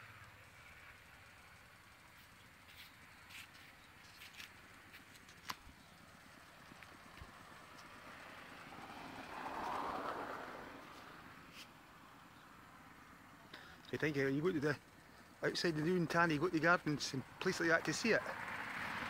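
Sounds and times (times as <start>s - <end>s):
vehicle passing: 5.8s - 19.0s.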